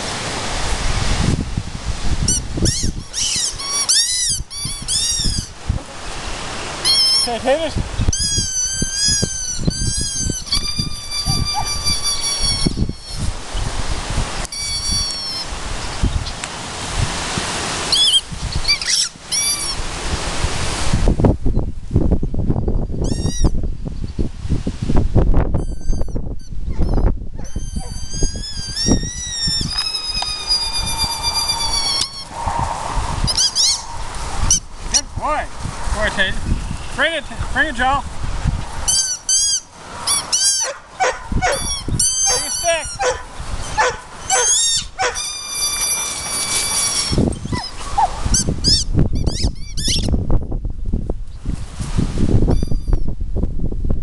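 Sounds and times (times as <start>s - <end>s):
low wind rumble: 0.0s - 54.0s
dog yipping: 2.6s - 5.5s, 8.2s - 13.3s, 14.5s - 15.5s, 17.9s - 19.8s, 25.7s - 32.3s, 33.2s - 34.6s, 38.9s - 50.1s
dog whining: 2.7s - 5.5s, 8.1s - 13.3s, 14.5s - 15.5s, 18.0s - 19.8s, 25.6s - 32.4s, 33.2s - 35.0s, 38.9s - 50.1s.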